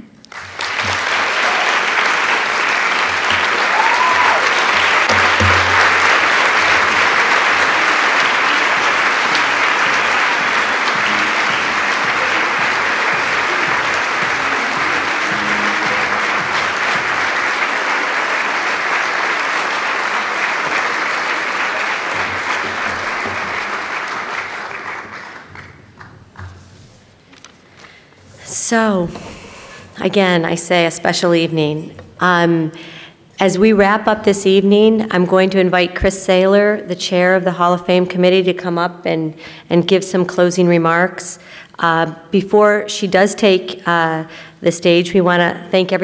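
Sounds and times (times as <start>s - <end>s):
audience applauding: 0.3s - 26.6s.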